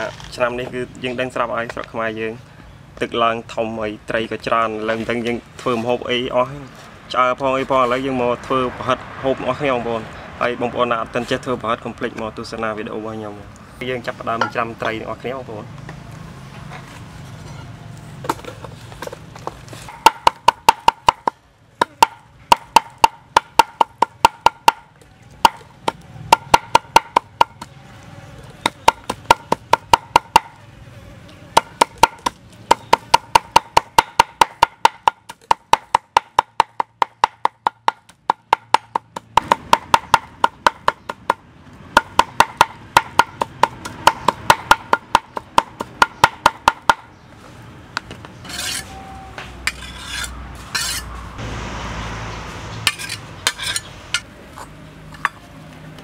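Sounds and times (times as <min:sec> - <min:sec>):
knife chopping on wooden block: 0:19.9 - 0:27.7, 0:28.6 - 0:30.6, 0:31.6 - 0:47.1.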